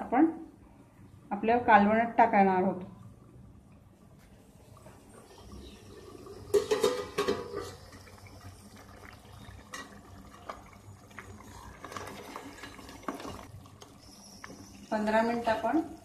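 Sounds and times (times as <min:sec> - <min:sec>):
liquid sloshing: 0:04.0 - 0:14.0
ladle clattering in steel pot: 0:06.5 - 0:07.8.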